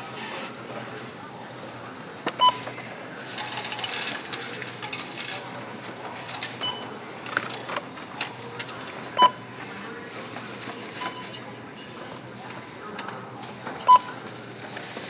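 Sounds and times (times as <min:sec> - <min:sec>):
scanner beeping: 0:09.2 - 0:09.6, 0:10.9 - 0:12.3, 0:13.6 - 0:14.3.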